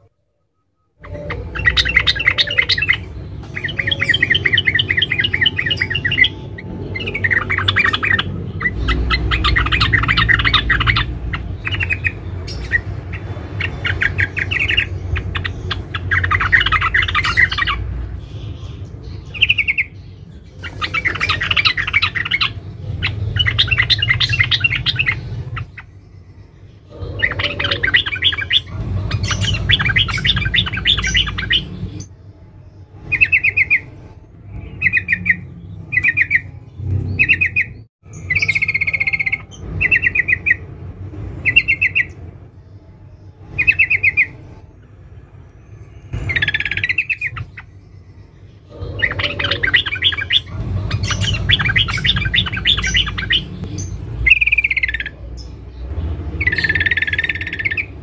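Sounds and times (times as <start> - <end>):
bird chattering: 1.0 - 26.0, 26.9 - 32.1, 48.6 - 58.0
bird trilled calls: 1.0 - 32.1, 46.1 - 58.0
low rumble: 1.1 - 33.2, 50.4 - 58.0.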